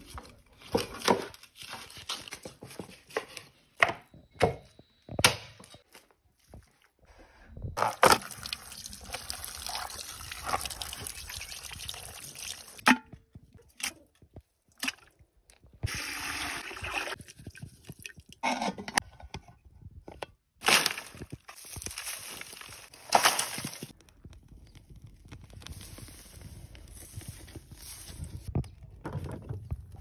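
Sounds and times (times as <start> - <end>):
twigs rustling and snapping: 20.6 - 28.7.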